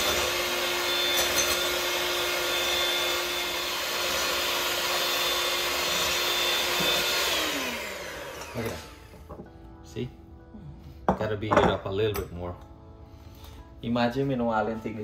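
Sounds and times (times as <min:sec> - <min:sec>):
electric hand mixer whirring: 0:00.0 - 0:09.4.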